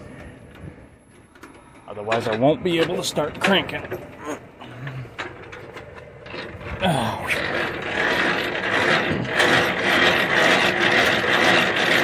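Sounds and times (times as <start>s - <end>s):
hand crank ratcheting gears: 4.7s - 12.0s.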